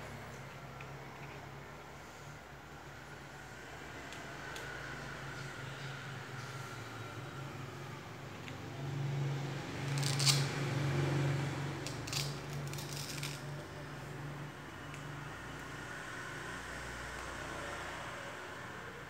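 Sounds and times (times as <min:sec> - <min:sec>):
small hard objects clicking: 0:11.8 - 0:13.4.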